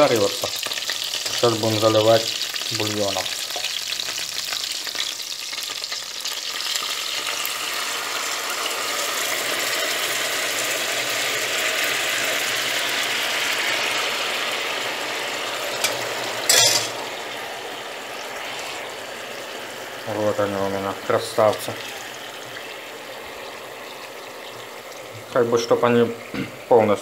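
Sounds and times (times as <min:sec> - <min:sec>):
dumplings sizzling in oil: 0:00.0 - 0:27.0.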